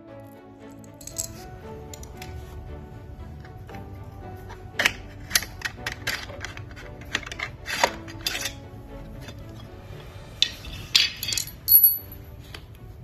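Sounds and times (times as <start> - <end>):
background music: 0.0 - 13.0
metal clicks and clinks: 0.9 - 1.4, 10.4 - 12.2.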